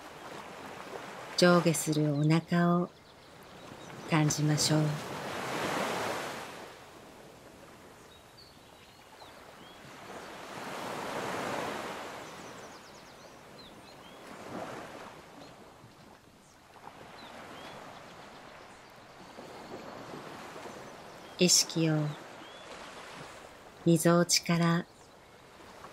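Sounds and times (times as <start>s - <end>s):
ocean waves washing in: 3.6s - 8.1s, 9.2s - 15.8s, 16.6s - 24.4s.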